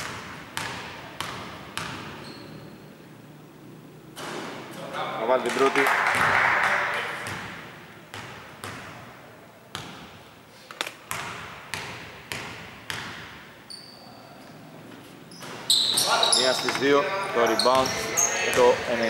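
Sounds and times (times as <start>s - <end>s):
brief high squeak: 2.2s - 2.8s, 15.3s - 16.7s.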